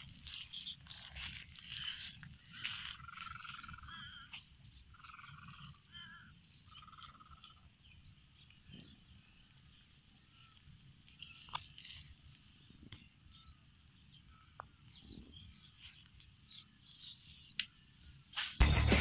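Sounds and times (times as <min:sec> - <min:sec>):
frogs croaking: 0:00.0 - 0:08.2.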